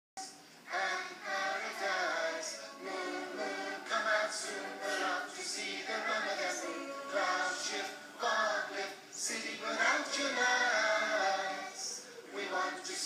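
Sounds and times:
choir singing unaccompanied: 0.7s - 13.0s.

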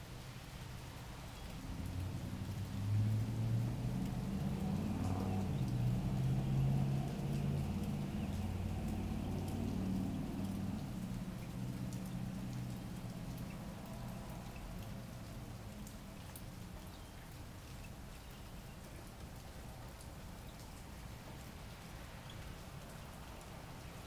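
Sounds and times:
light rain falling: 0.0s - 24.0s
single raindrops clicking: 1.4s - 24.0s.

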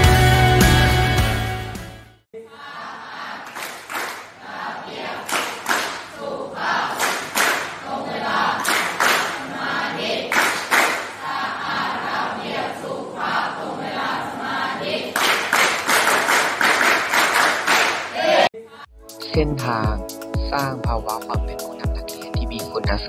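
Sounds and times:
background music: 0.0s - 2.2s, 18.9s - 23.0s
students chanting in unison: 2.5s - 3.6s, 4.3s - 15.4s, 17.9s - 18.5s
rhythmic claps: 3.4s - 4.4s, 5.0s - 6.2s, 6.8s - 7.9s, 8.5s - 9.5s, 10.2s - 11.2s, 15.1s - 18.5s.

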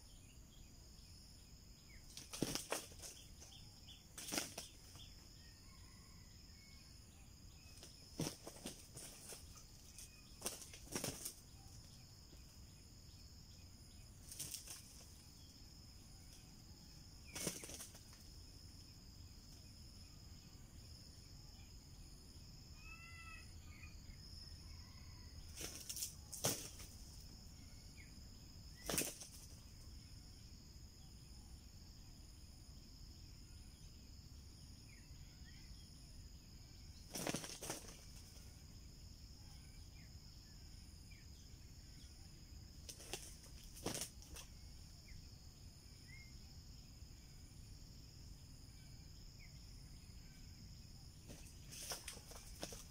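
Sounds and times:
rooster flapping wings: 2.1s - 3.2s, 4.2s - 5.0s, 7.8s - 11.4s, 14.2s - 15.1s, 17.3s - 18.2s, 25.5s - 27.0s, 28.8s - 29.5s, 37.1s - 38.2s, 42.9s - 44.5s, 51.3s - 52.9s.

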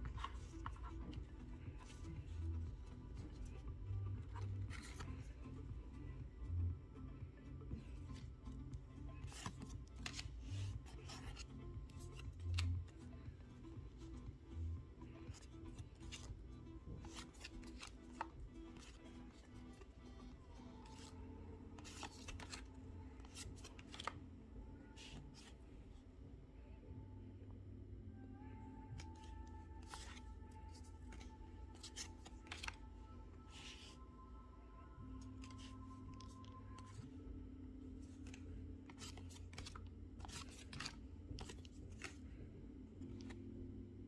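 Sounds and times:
trading cards rustling and snapping: 0.0s - 6.0s, 7.6s - 14.2s, 15.0s - 24.3s, 29.0s - 34.0s, 35.2s - 37.1s, 38.0s - 42.4s, 43.0s - 43.5s.

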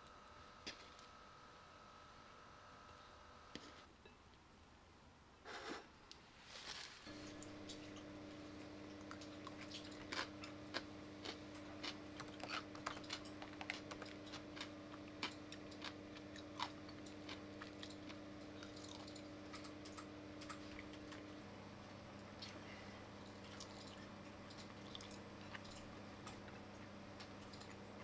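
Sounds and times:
low electrical hum: 0.0s - 28.0s
chewing: 7.1s - 21.4s, 22.4s - 27.9s.

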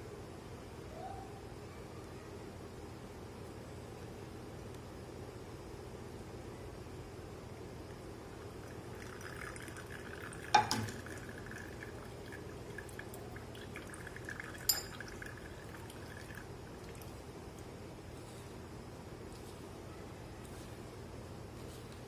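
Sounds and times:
syrup trickling through strainer: 8.4s - 17.3s.

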